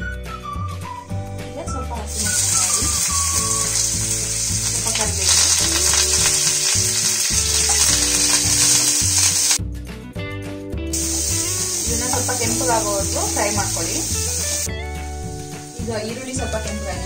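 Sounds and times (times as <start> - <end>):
hot oil sizzling in a pan: 2.0 - 9.6, 10.9 - 17.0.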